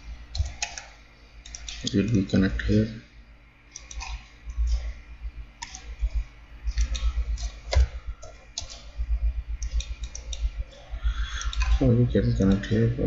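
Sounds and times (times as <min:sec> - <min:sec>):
mouse and keyboard clicks: 0:00.4 - 0:02.0, 0:03.7 - 0:04.9, 0:05.6 - 0:08.9, 0:09.6 - 0:11.8.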